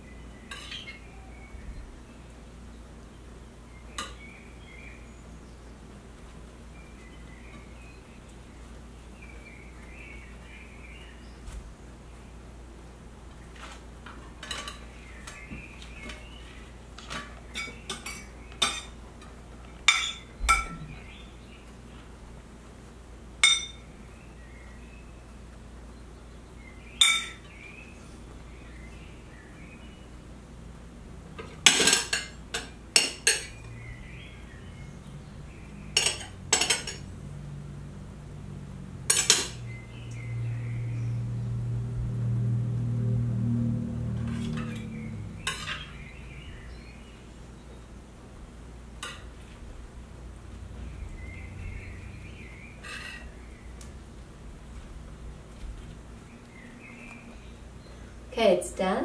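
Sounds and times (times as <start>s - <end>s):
cutlery clinking against dishes: 0.5s - 1.0s, 14.4s - 14.8s, 17.0s - 19.0s, 19.9s - 20.8s, 23.4s - 23.8s, 27.0s - 27.4s, 31.6s - 33.6s, 35.9s - 37.1s, 39.1s - 39.6s.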